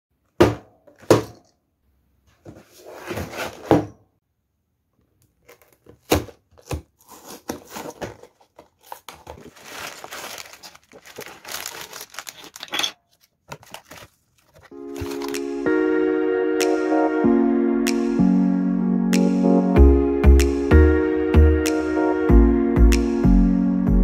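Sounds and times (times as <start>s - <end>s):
plastic bags crinkling: 5.4s - 15.4s
small plastic parts rattling: 7.6s - 15.2s.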